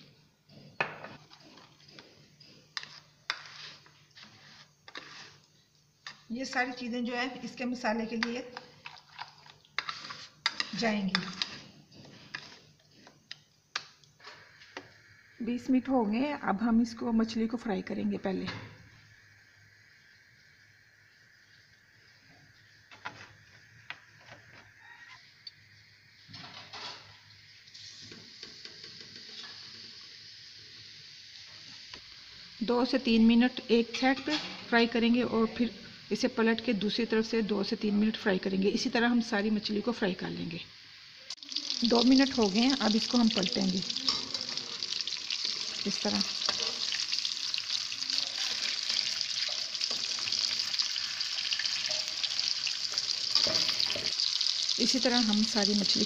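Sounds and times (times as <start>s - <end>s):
spatula scrapes and taps: 0.8s - 6.2s, 9.8s - 13.9s
fish sizzling in hot oil: 9.0s - 12.7s, 25.8s - 34.6s, 40.4s - 56.0s.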